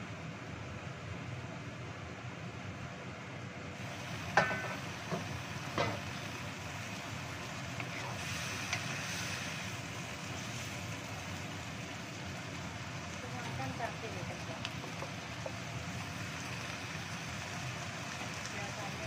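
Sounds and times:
vegetables sizzling in a wok: 0.0 - 19.0
metal wok lid clinking: 4.4 - 4.8.

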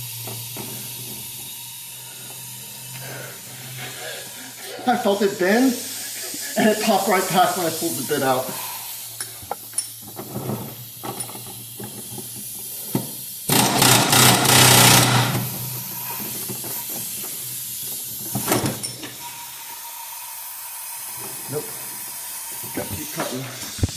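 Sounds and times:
loud harsh mechanical burst: 1.8 - 8.8, 13.5 - 16.1.

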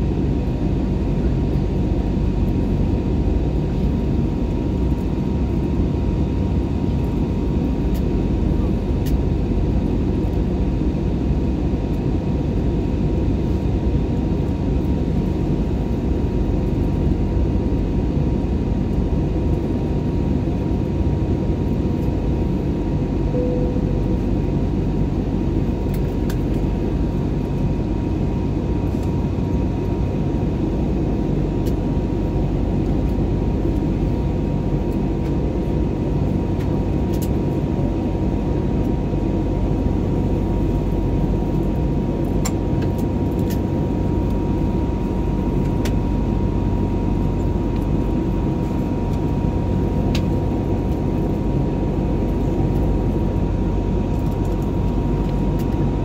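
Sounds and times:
airliner cabin roar: 0.0 - 56.0
faint steady hum: 0.0 - 56.0.

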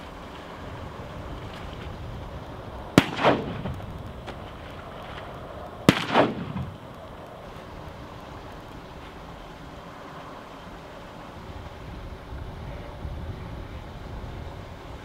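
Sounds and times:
shotgun shots: 3.0 - 3.9, 5.9 - 6.9
shot echo: 3.0 - 4.0, 5.9 - 7.0.

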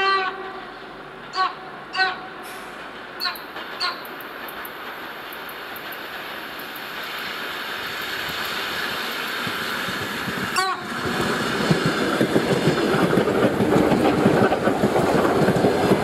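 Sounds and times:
train horn toots: 0.0 - 4.1, 10.6 - 11.0
approaching train rushing: 0.0 - 16.0.

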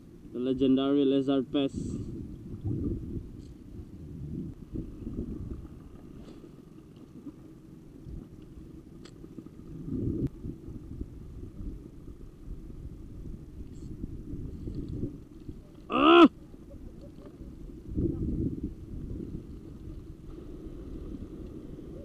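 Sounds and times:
wind buffeting microphone: 1.4 - 6.2, 9.6 - 22.0.

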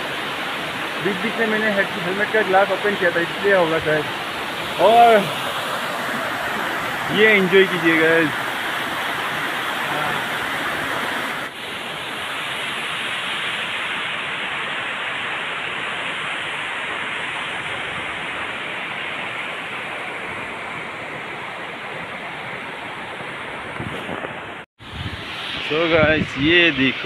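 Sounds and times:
waterfall pouring onto rocks: 7.1 - 8.4.

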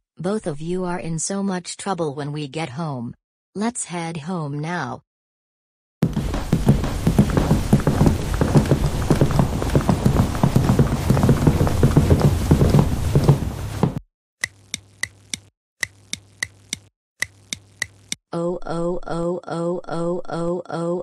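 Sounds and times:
footsteps of several people: 6.0 - 14.0.

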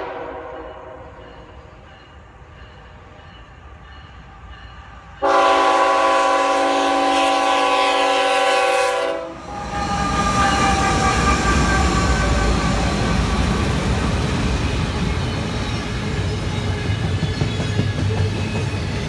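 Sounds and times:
locomotive air horn blast: 0.0 - 1.0, 5.2 - 12.6
diesel locomotives rumbling past: 0.0 - 19.0.

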